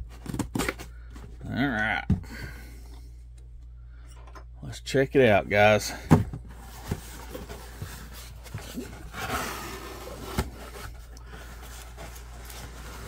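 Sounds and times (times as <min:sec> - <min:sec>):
handling foam packing peanuts: 0:05.8 - 0:13.0
cardboard flaps rubbing and scraping: 0:06.5 - 0:13.0.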